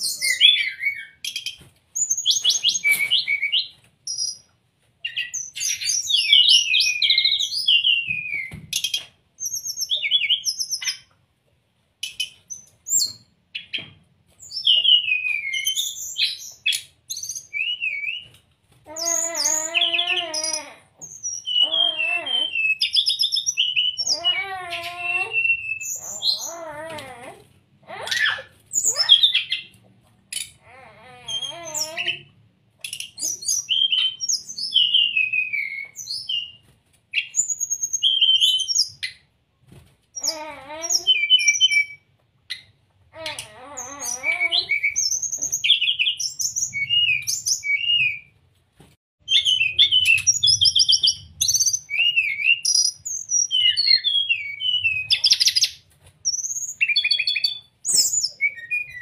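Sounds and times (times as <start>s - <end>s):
bird singing whistled phrases: 19.1s - 26.6s, 33.2s - 36.6s, 44.0s - 48.3s, 49.3s - 59.0s.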